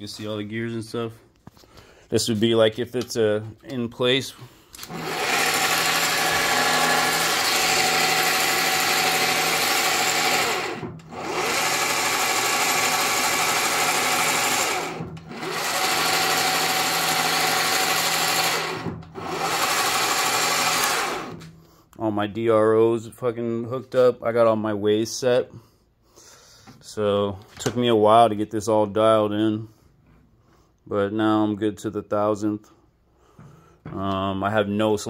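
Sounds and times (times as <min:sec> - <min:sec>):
gear noise: 0:04.8 - 0:21.4
lathe spindle whirring: 0:04.8 - 0:21.5.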